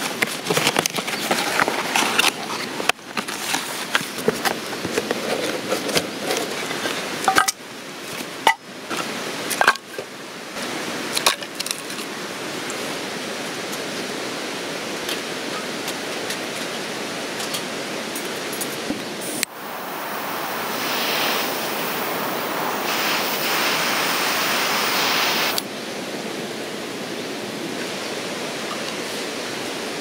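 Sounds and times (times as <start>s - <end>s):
running water rushing: 19.1s - 25.7s.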